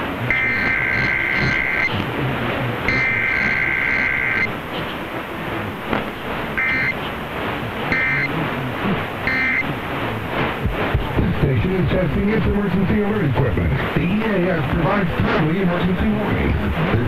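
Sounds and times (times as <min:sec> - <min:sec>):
radio reception hiss: 0:00.0 - 0:17.0
two-tone digital warble bursts: 0:00.3 - 0:02.0, 0:02.8 - 0:04.5, 0:06.6 - 0:07.0, 0:07.8 - 0:08.4, 0:09.2 - 0:09.7.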